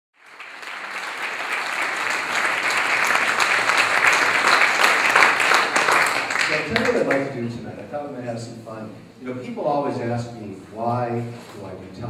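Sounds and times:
audience applauding: 0.2 - 7.5.

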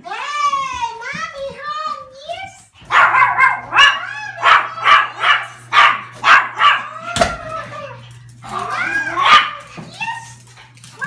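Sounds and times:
dogs yelping and whining: 2.9 - 11.0.

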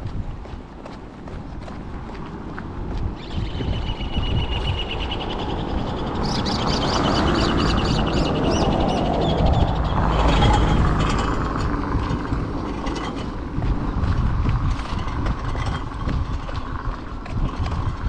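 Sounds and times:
car passing: 4.8 - 15.6.

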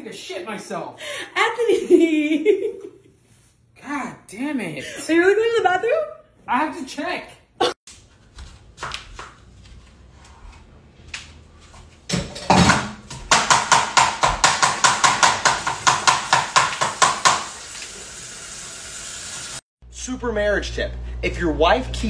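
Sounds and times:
tap water running: 14.9 - 19.6.

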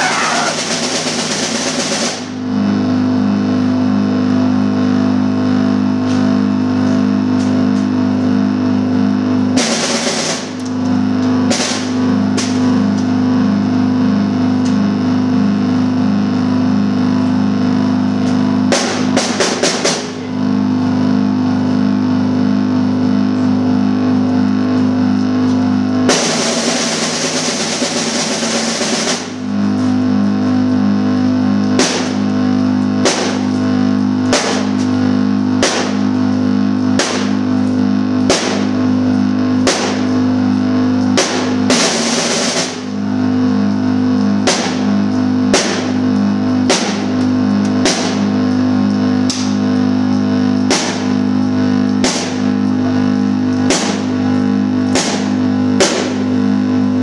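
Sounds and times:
cymbal strikes: 11.4 - 12.9, 31.7 - 32.4, 33.0 - 33.6, 35.6 - 36.2, 41.1 - 57.0.

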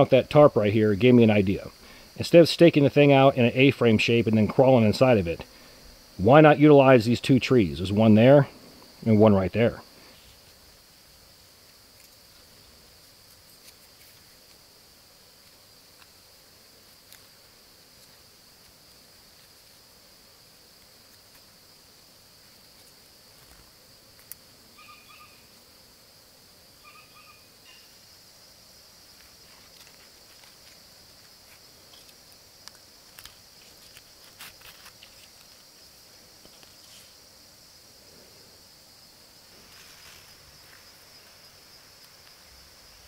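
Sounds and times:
insect chorus drone: 0.0 - 43.0
cord rustling against bark: 9.9 - 14.7, 15.4 - 19.9, 22.3 - 25.2, 28.8 - 37.3, 39.4 - 43.0
animal calls: 24.7 - 25.5, 26.8 - 28.0.

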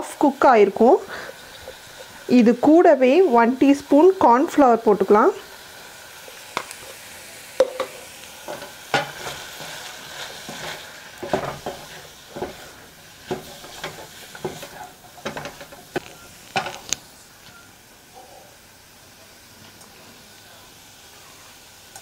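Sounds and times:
butter sizzling: 0.0 - 22.0
wooden spatula scraping a pan: 7.8 - 16.9.

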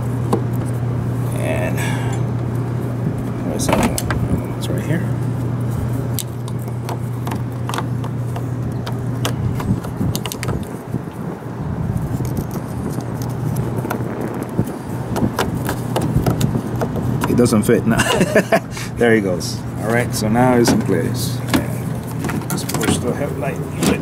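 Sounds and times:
steady low hum: 0.0 - 24.0
plastic clicks and scrapes: 6.2 - 10.8.

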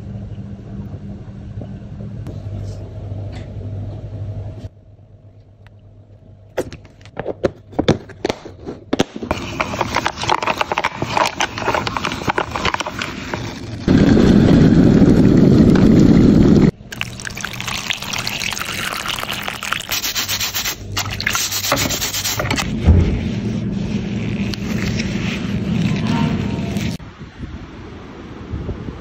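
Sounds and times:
steaming kettle rush: 9.3 - 22.6
brush scrubbing in soapy water: 9.4 - 13.8, 18.9 - 22.6, 23.4 - 27.0
scratchy rubbing: 19.8 - 22.6, 23.2 - 27.0.

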